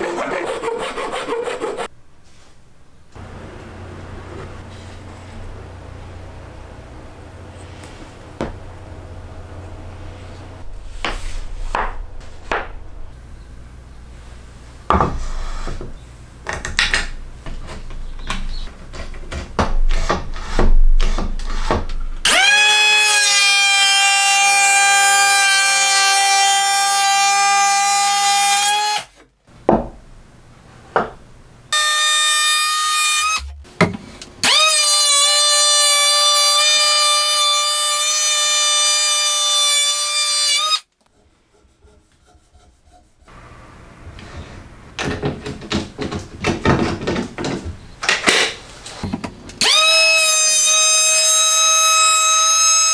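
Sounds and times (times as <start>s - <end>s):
wooden pieces knocking and rubbing: 44.2s - 49.4s
electric hand planer whining: 49.6s - 52.9s.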